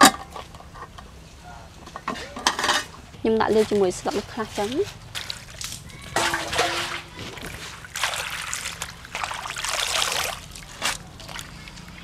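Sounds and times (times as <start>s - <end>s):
water splashing into metal bowl: 5.1s - 11.9s.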